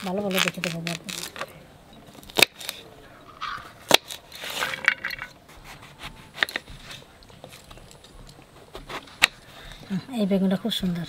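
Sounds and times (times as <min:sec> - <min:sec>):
knife slicing and scraping: 0:05.4 - 0:07.1.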